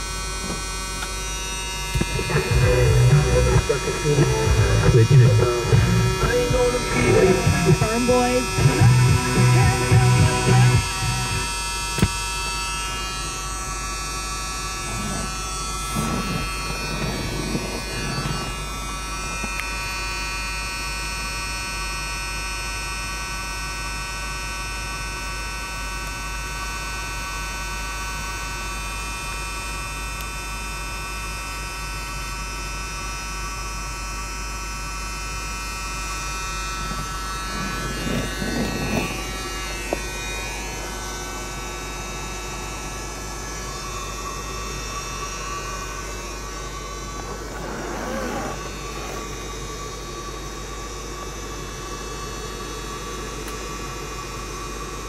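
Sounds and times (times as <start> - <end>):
steady hum with buzzing whine: 0.0 - 55.0
car radio music: 1.9 - 12.2.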